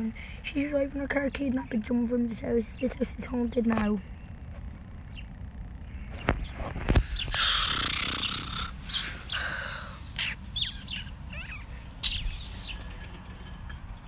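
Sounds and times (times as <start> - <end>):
bird chirps: 5.0 - 14.0
fabric rubbing on microphone: 6.1 - 8.2, 12.3 - 12.8.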